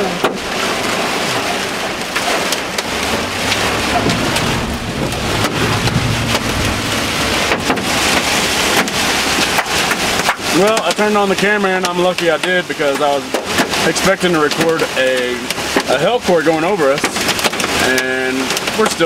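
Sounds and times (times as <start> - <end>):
rain and hail drumming on vehicle roof: 0.0 - 19.0
low rumble: 2.5 - 10.3.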